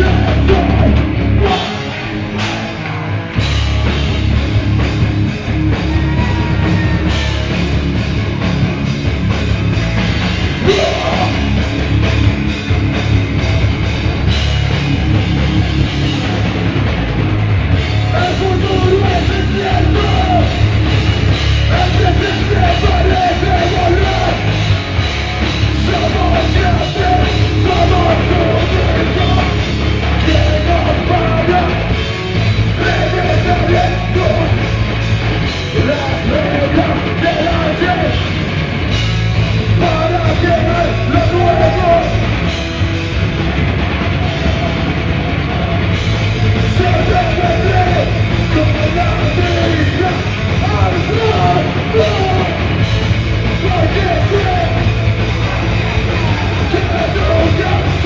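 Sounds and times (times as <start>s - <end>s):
distorted guitars: 0.0s - 58.0s
drums: 0.0s - 58.0s
vocalist yelling: 10.6s - 11.5s, 46.7s - 52.7s.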